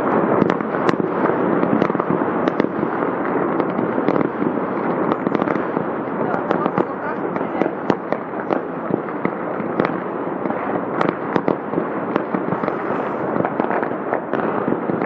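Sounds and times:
fireworks crackling and banging: 0:00.0 - 0:15.0.

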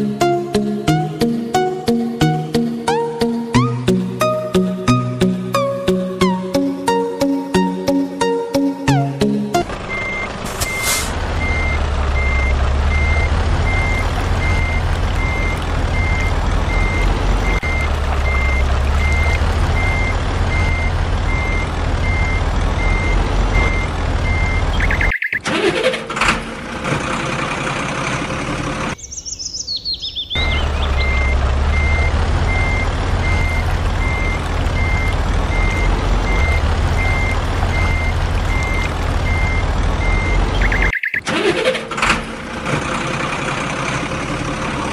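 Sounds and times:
truck engine rumble: 0:00.0 - 0:44.9
reversing alarm beeping: 0:09.9 - 0:25.4, 0:30.4 - 0:41.3.

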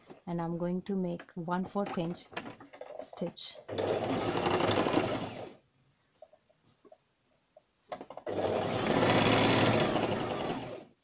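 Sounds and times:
sewing machine stitching: 0:02.8 - 0:05.6, 0:08.0 - 0:10.9.

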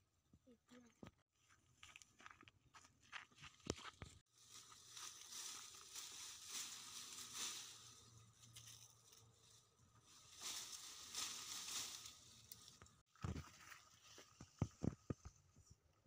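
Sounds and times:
leaves rustling: 0:04.3 - 0:14.5.

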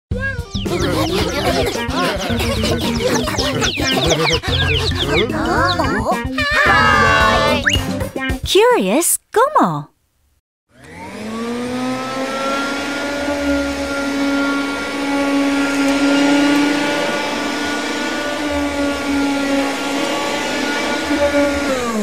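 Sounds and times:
vacuum cleaner running: 0:00.6 - 0:06.0, 0:10.7 - 0:22.0.

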